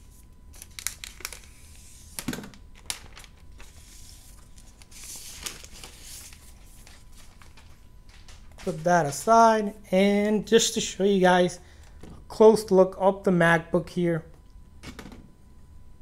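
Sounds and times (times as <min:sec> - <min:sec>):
plastic film rustle: 0:00.0 - 0:09.5
plastic film crackling: 0:00.5 - 0:09.3.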